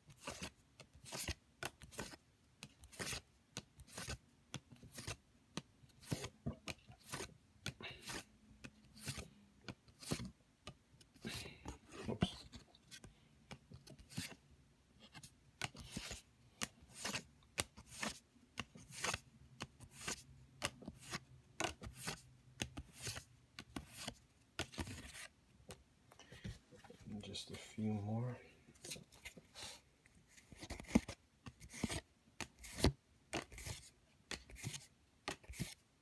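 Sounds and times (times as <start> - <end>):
cards flicking and tapping: 15.1 - 25.8, 30.6 - 35.8.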